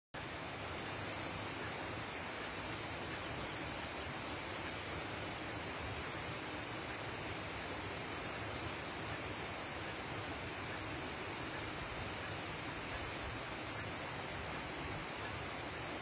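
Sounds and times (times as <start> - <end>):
river rushing: 0.2 - 16.0
faint bird chirps: 7.7 - 16.0.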